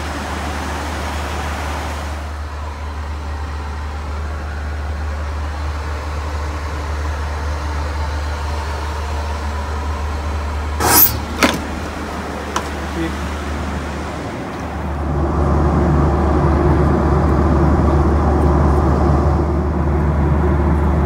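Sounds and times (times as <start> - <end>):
airplane cabin engine drone: 0.0 - 21.0.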